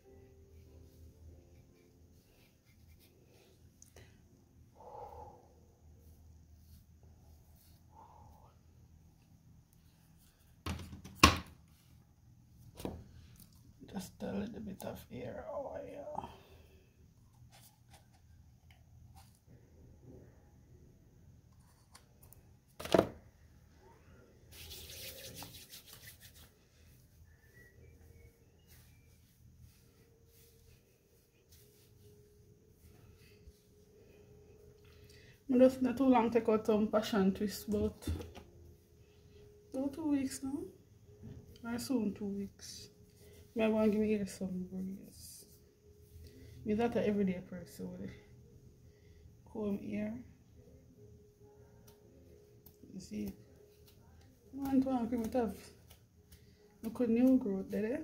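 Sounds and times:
hands rubbing hair: 0:00.8 - 0:03.6, 0:24.4 - 0:34.8.

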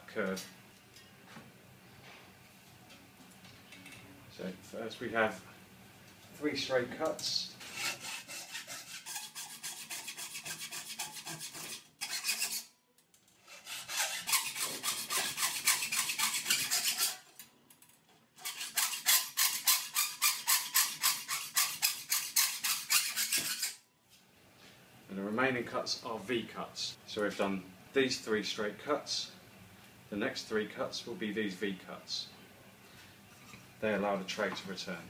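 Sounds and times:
hacksaw cutting metal: 0:07.6 - 0:12.7, 0:13.4 - 0:17.4, 0:18.4 - 0:23.8.

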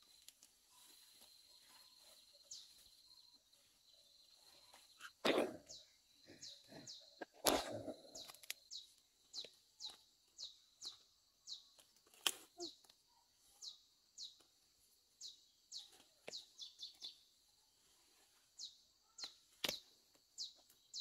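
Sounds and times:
twigs and leaves crackling: 0:00.0 - 0:03.7, 0:07.4 - 0:10.2, 0:11.7 - 0:13.0, 0:19.2 - 0:20.8.

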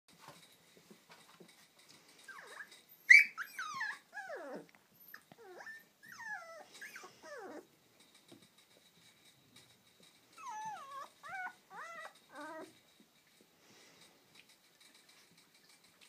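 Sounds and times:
puppies whining and yelping: 0:02.2 - 0:07.8, 0:10.3 - 0:12.9.

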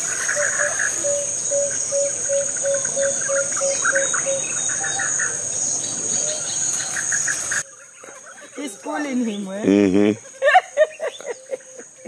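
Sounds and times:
high-pitched insect drone: 0:00.0 - 0:07.6
birds chirping: 0:00.0 - 0:12.0.

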